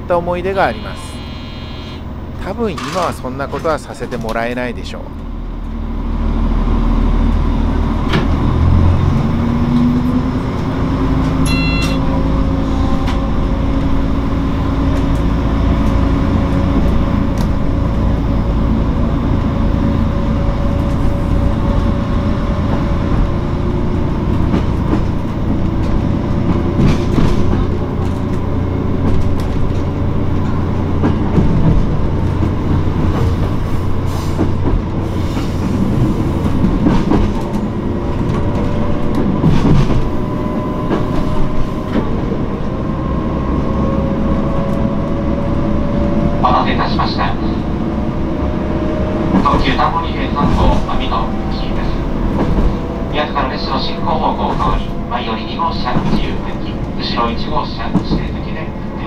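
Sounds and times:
diesel railcar engine: 0.0 - 59.0
wheels rumbling on rail: 0.0 - 59.0
brief high tone: 0.6 - 2.1, 11.4 - 12.2.

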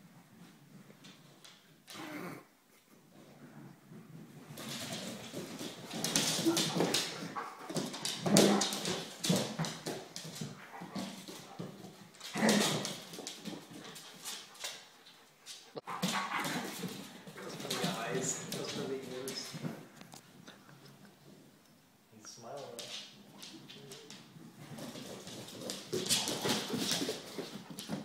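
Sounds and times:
dogs growling and vocalizing: 12.3 - 13.0.

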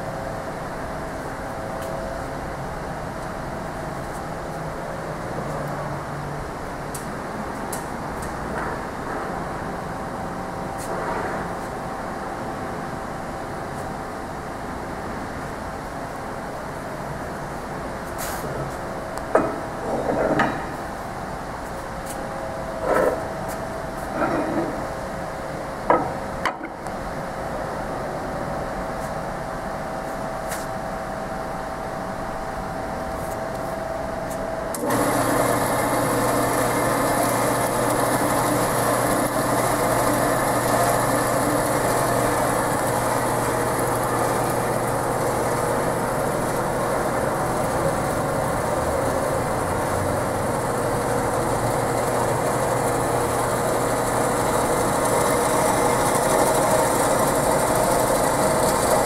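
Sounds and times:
band saw humming: 34.7 - 59.0.

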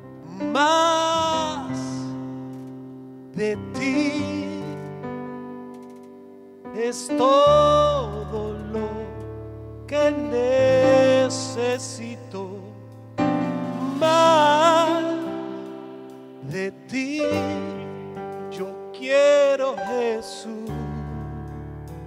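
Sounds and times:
person singing with vibrato: 0.2 - 2.5, 3.4 - 5.2, 6.7 - 21.6
sustained instrumental chords: 8.0 - 18.9.

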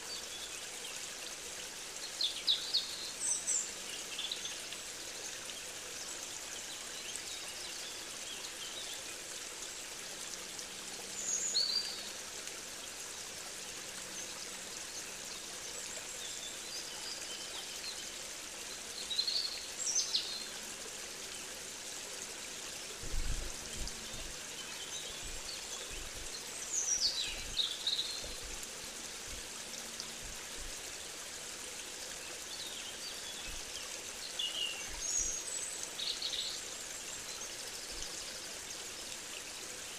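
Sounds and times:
flowing water: 0.0 - 39.9.

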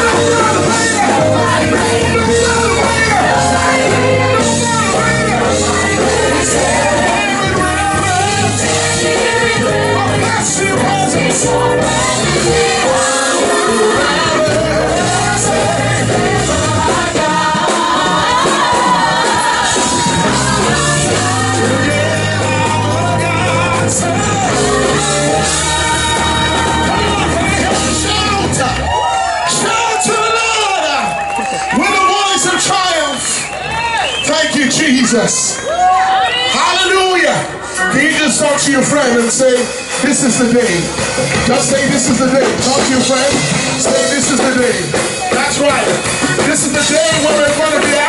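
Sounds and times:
gospel choir singing: 0.0 - 28.8, 38.6 - 48.0
amplified accompaniment: 0.0 - 29.0, 37.5 - 48.0
bass line: 0.0 - 29.8, 37.9 - 48.0.

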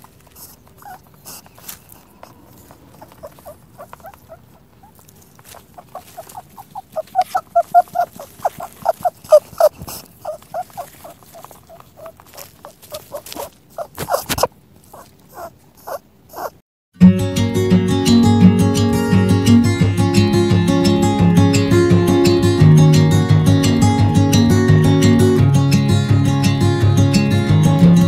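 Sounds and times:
small animal squeaking: 0.0 - 16.6
strummed acoustic guitar music: 17.0 - 28.0.

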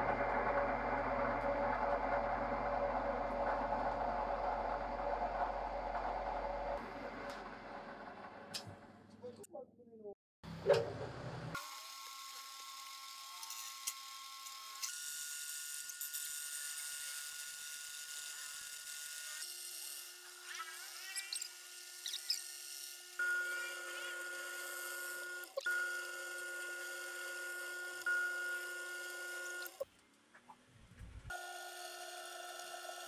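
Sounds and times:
lathe motor whine: 31.3 - 33.0.

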